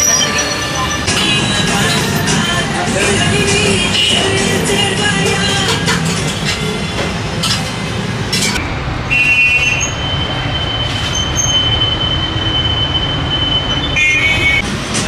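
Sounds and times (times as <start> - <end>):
road traffic rumbling: 0.0 - 15.0
high steady squeal: 9.1 - 14.1.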